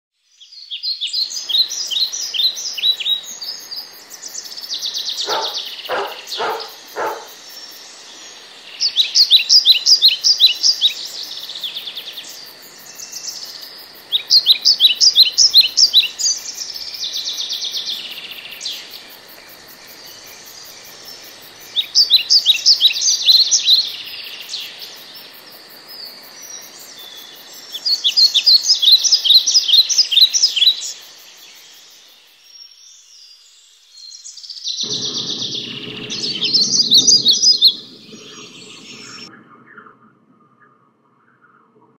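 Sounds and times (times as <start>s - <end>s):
faint steady hiss: 0.2s - 39.6s
songbird chirping: 0.4s - 41.9s
low steady hum: 34.8s - 41.7s.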